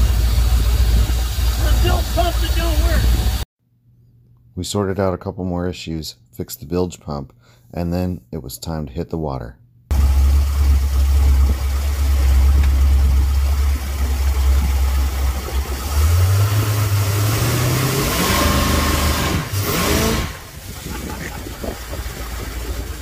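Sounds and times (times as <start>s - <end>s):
boat engine idling and revving: 0.0s - 3.4s, 9.9s - 23.0s
water rushing from jet: 0.0s - 3.4s, 9.9s - 23.0s.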